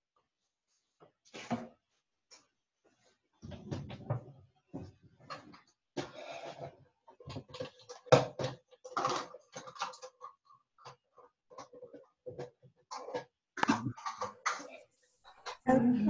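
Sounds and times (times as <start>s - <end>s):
kitchen items knocking and clattering: 3.4s - 16.0s
wavering voice-like tone: 15.7s - 16.0s.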